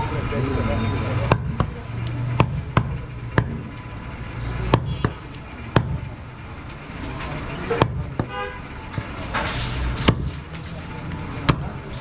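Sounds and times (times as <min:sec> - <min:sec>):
knife chopping meat on wood: 0:10.0 - 0:10.4.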